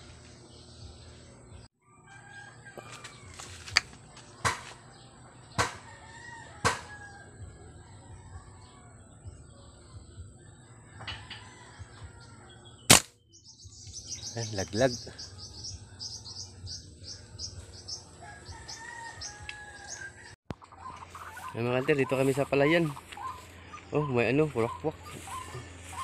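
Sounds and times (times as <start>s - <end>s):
rifle shot: 12.9s - 13.2s
faint bird calls: 20.6s - 26.0s.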